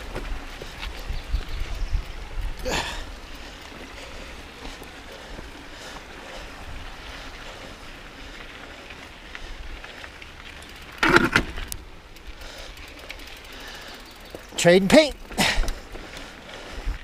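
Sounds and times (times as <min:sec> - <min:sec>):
wind noise on microphone: 0:00.0 - 0:03.2
mountain bike rolling on dirt: 0:00.0 - 0:17.0.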